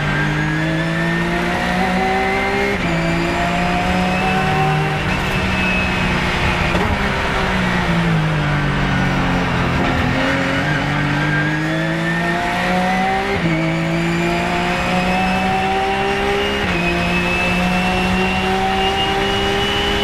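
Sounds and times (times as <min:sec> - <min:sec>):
race car engine accelerating: 0:00.0 - 0:20.0.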